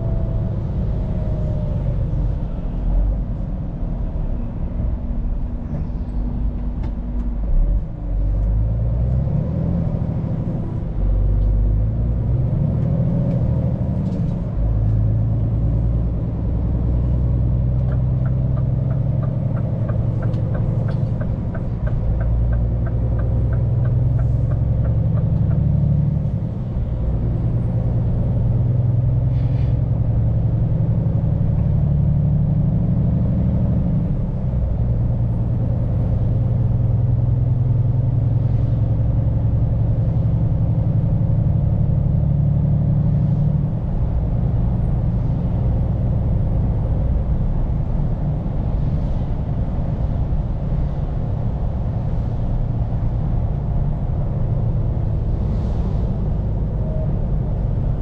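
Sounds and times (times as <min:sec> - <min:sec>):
truck diesel engine: 0:00.0 - 0:58.0
turn indicator ticking: 0:17.8 - 0:26.1.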